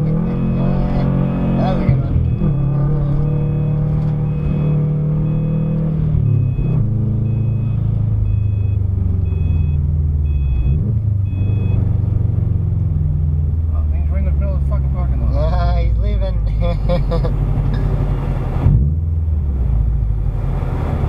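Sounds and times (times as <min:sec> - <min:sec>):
car engine running: 0:00.0 - 0:21.0
faint two-tone beep: 0:07.3 - 0:11.8.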